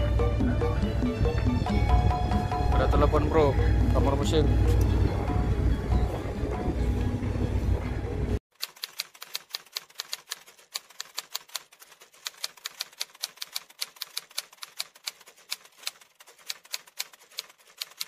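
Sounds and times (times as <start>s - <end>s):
typewriter key clicks: 8.6s - 18.0s.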